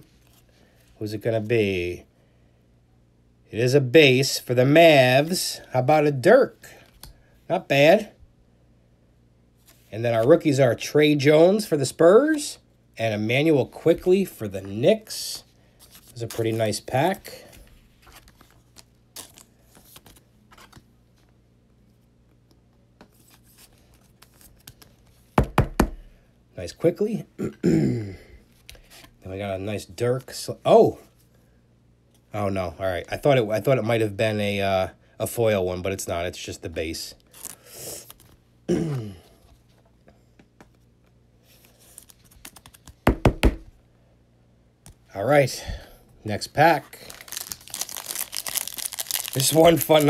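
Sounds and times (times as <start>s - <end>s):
trading cards rustling and clicking: 15.8s - 21.3s, 23.0s - 25.3s, 41.5s - 43.2s, 46.8s - 50.0s.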